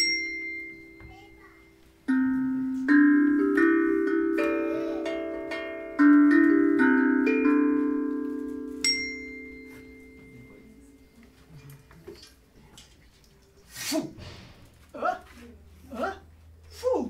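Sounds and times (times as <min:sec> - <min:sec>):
high bell-like ping: 0:00.0 - 0:01.6, 0:08.8 - 0:11.2
vibraphone chords ringing: 0:00.0 - 0:11.4.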